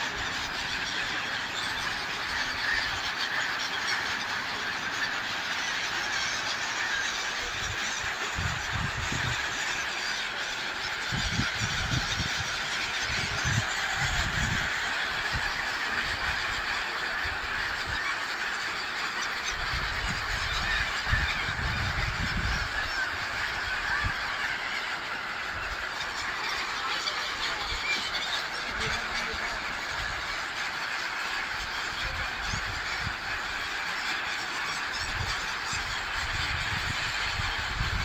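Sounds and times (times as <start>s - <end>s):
gulls calling: 0.0s - 38.0s.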